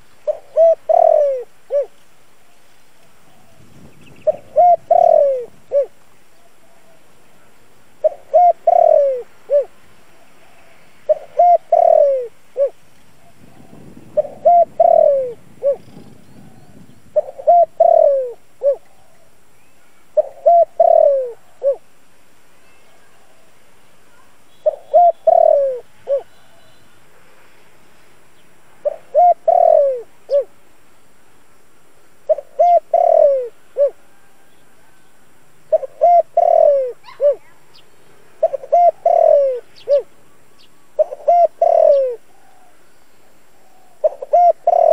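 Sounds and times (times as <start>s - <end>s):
dove cooing: 0.2s - 2.0s, 3.2s - 19.4s, 20.2s - 21.9s, 24.1s - 26.9s, 28.8s - 30.5s, 32.3s - 35.0s, 35.7s - 37.8s, 38.4s - 40.2s, 41.0s - 44.9s.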